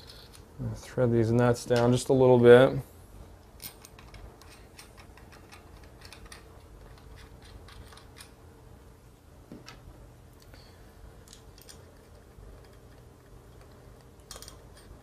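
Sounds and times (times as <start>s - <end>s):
nuts threading metallic clicks: 11.2s - 15.0s.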